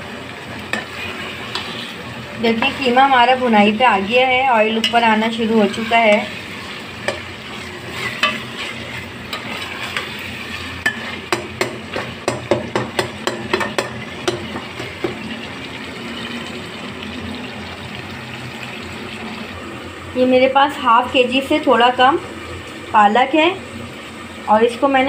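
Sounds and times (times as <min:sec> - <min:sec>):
meat sizzling in oil: 0:00.0 - 0:25.0
spoon tapping and scraping pot: 0:07.9 - 0:10.1, 0:10.8 - 0:15.2.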